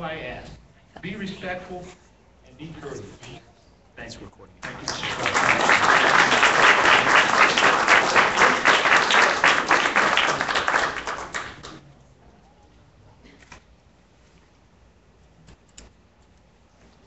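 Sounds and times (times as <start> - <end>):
audience applauding: 4.6 - 11.8.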